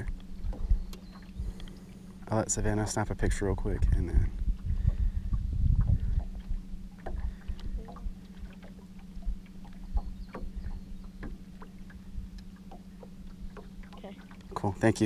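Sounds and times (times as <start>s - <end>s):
steady low hum: 0.0s - 15.0s
water lapping against hull: 0.0s - 15.0s
small knocks and ticks: 7.0s - 14.6s.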